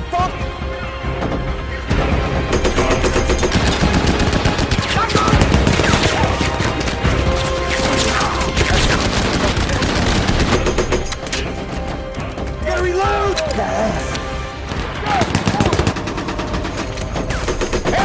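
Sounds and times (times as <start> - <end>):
machine-gun fire: 2.5 - 7.0, 8.6 - 11.1, 15.2 - 18.0.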